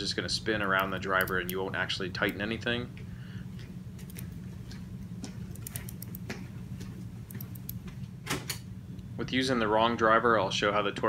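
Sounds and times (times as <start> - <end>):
steady low hum: 0.0 - 11.0
metallic clicks of torque wrench: 5.5 - 6.2.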